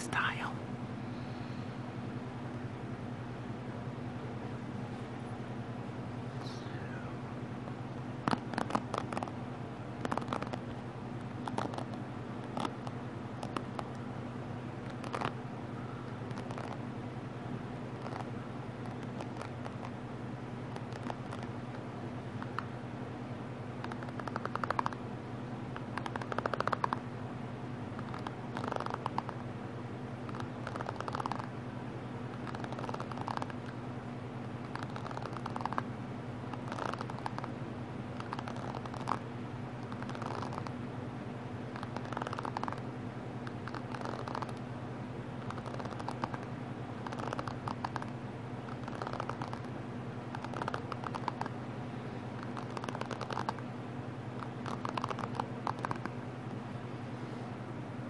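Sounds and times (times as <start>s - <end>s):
steady low hum: 0.0s - 58.0s
fingers tapping and clicking on lens: 8.3s - 9.3s, 10.0s - 10.7s, 11.4s - 14.0s, 14.9s - 15.4s, 16.3s - 16.8s, 18.0s - 19.9s, 20.7s - 21.5s, 23.8s - 25.0s, 25.8s - 27.0s, 28.0s - 29.4s, 30.3s - 31.5s, 32.4s - 33.7s, 34.7s - 35.8s, 36.6s - 37.5s, 38.2s - 39.2s, 41.8s - 42.8s, 43.5s - 44.6s, 45.5s - 46.4s, 47.0s - 48.1s, 48.7s - 49.6s, 50.4s - 51.5s, 52.4s - 53.6s, 54.6s - 56.1s.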